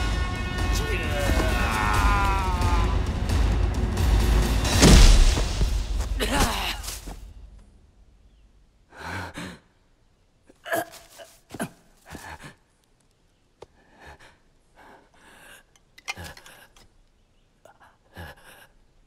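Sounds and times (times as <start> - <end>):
man gasping and breathing heavily: 10.7 - 12.6.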